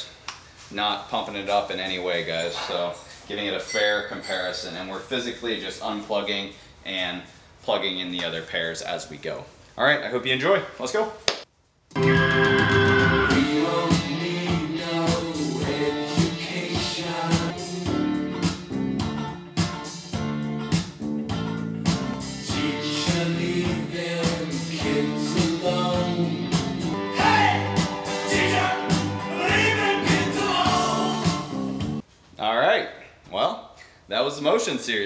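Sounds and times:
song with singing over guitar: 12.0 - 19.3, 22.2 - 32.0.

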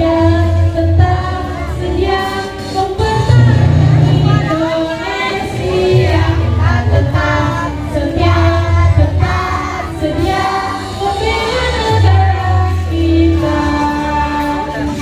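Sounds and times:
several voices singing: 0.0 - 15.0
heavy bass line: 3.0 - 9.4.

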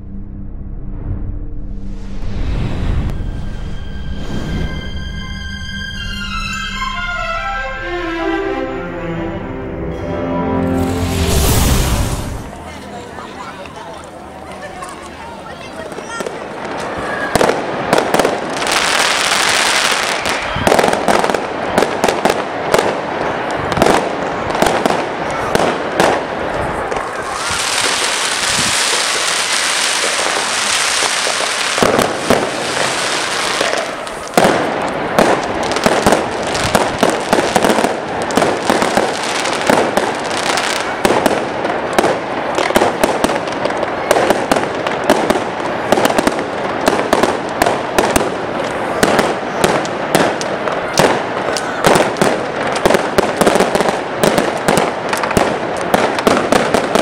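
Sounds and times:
dense high hiss: 1.4 - 14.5
fireworks bangs and pops: 13.6 - 57.0.

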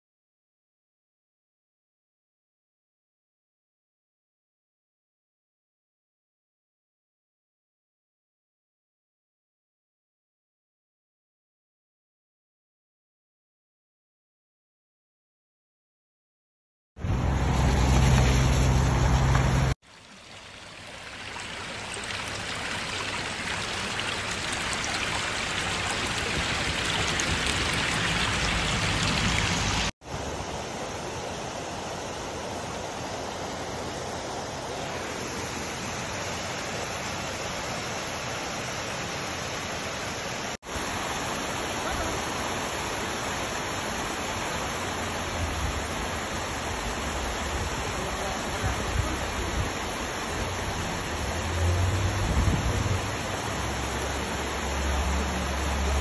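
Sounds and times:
flood water rushing over rocks: 17.1 - 56.0.

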